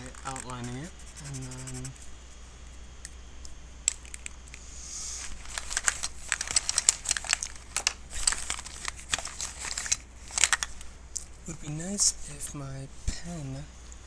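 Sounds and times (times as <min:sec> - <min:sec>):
crinkling and rustling: 0:05.2 - 0:12.5.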